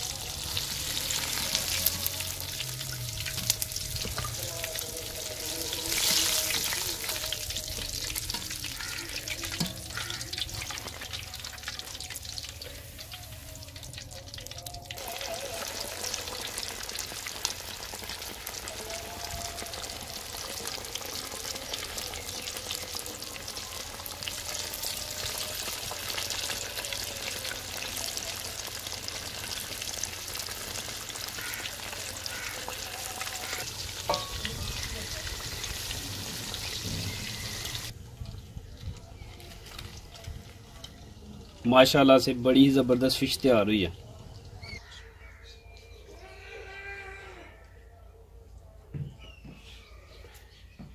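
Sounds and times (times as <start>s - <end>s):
fish sizzling in hot oil: 0.0s - 43.4s.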